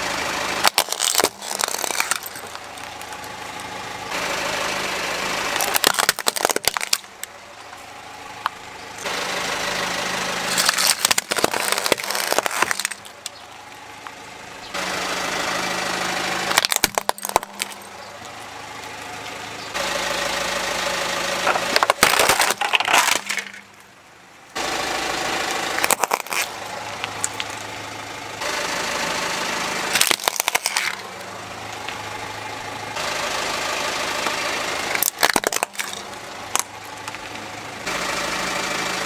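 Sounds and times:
car engine running: 0:00.0 - 0:39.0
plastic toys cracking under tyre: 0:00.6 - 0:03.8, 0:05.5 - 0:07.4, 0:10.5 - 0:14.2, 0:16.5 - 0:18.4, 0:21.4 - 0:23.9, 0:25.5 - 0:27.6, 0:29.9 - 0:31.1, 0:34.2 - 0:37.4.

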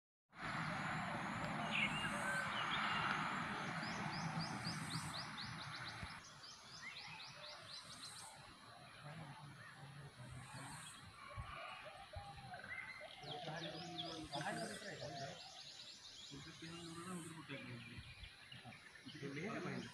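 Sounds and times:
steady rushing noise: 0:00.4 - 0:06.2.

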